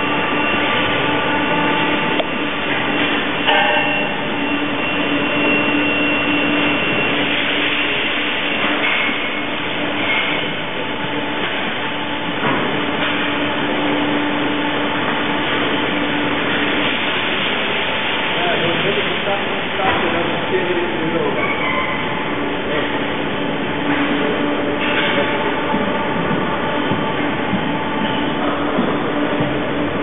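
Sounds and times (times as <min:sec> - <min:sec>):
milking machinery rumbling: 0:00.0 - 0:30.0
short high squeaks: 0:21.4 - 0:22.2.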